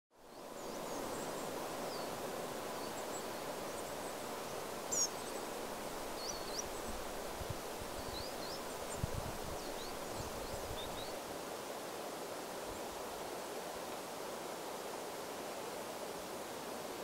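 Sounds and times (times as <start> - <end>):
wind rustling in trees: 0.1 - 17.0
small birds chirping: 0.2 - 7.0, 7.8 - 11.2.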